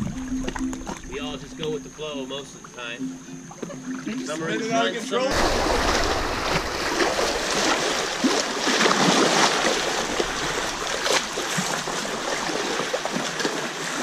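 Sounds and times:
water rushing over rocks: 5.3 - 14.0.

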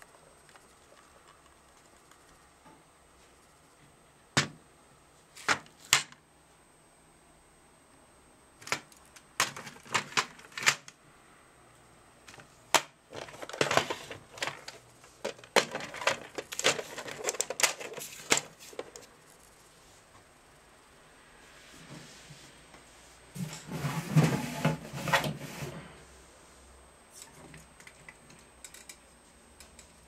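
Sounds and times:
hard plastic parts clicking and knocking: 12.3 - 18.9.

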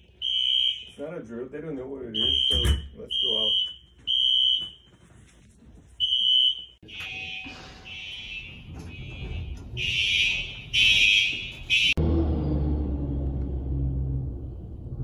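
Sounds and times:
fire alarm beeping: 0.0 - 1.0, 2.2 - 5.3, 6.0 - 12.0.

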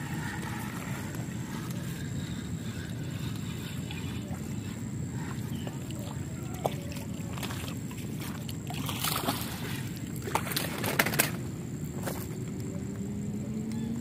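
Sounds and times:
steady low rumble: 0.0 - 10.4
fish splashing at surface: 5.2 - 11.4.

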